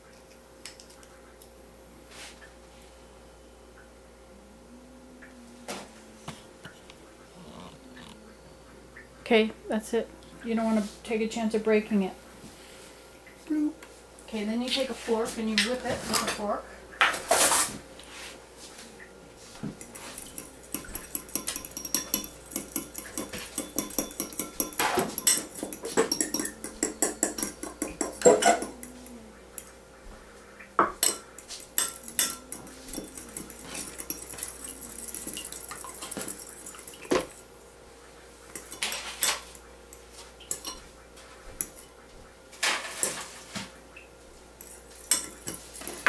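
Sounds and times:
fork whisking in a teacup: 0:19.8 - 0:29.7, 0:31.0 - 0:37.4, 0:44.6 - 0:46.0.

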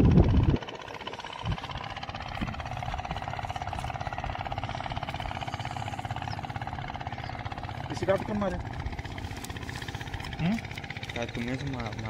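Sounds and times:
engine droning: 0:00.0 - 0:12.0.

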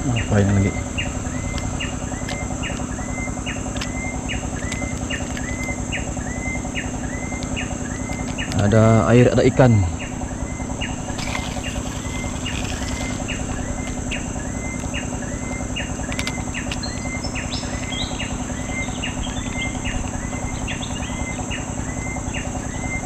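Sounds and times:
bird chirping: 0:00.0 - 0:23.0
insect drone: 0:00.0 - 0:23.0
higher-pitched bird calling: 0:09.8 - 0:23.0.

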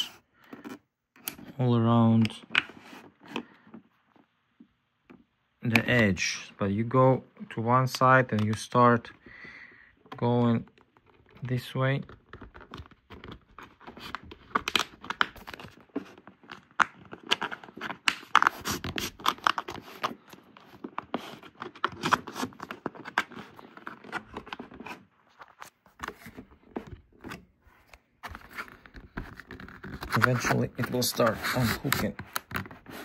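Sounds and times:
plastic card scraping plastic cover: 0:00.0 - 0:01.5, 0:10.2 - 0:33.0.

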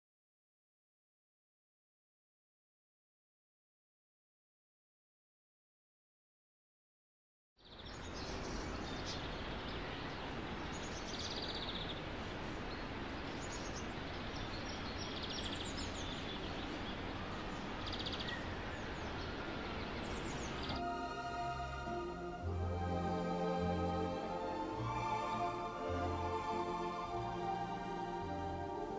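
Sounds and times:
birds chirping and trilling: 0:07.6 - 0:28.9
outdoor background noise: 0:07.6 - 0:28.9.

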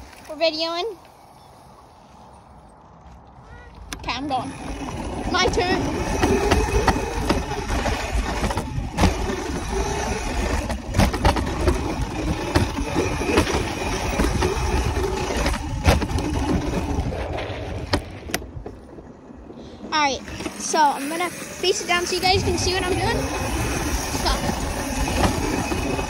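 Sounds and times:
wind rushing over microphone: 0:01.8 - 0:20.6
tyres rumbling on dirt: 0:03.1 - 0:26.0.

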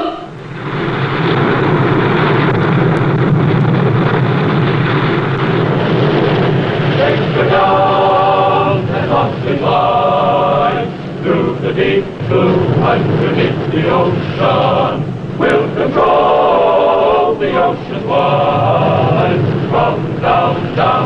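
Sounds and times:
rushing water and spray: 0:00.3 - 0:21.0
male choir theme music: 0:06.9 - 0:21.0.

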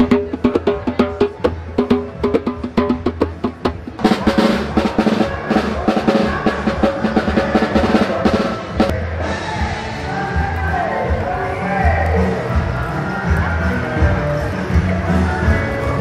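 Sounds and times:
samba percussion drumming: 0:00.0 - 0:09.0.

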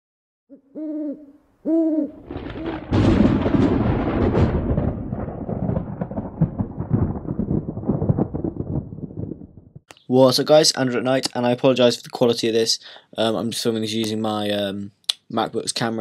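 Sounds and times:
owl hooting: 0:00.5 - 0:02.2
thunderclap rumbling: 0:02.2 - 0:09.8.

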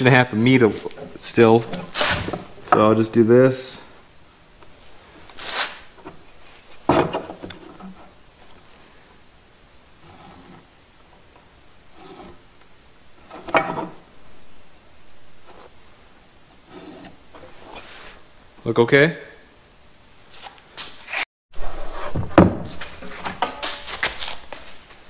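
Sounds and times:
scraping on wooden rail: 0:00.6 - 0:03.0.

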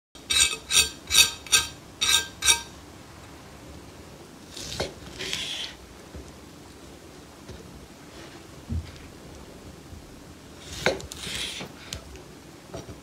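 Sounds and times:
knife sawing through steak: 0:00.3 - 0:02.7, 0:10.6 - 0:11.7.

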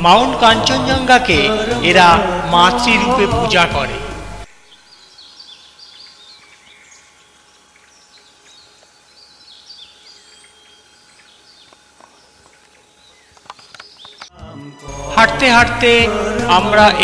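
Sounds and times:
faint outdoor hiss: 0:00.0 - 0:14.3
small birds chirping: 0:04.4 - 0:14.3.

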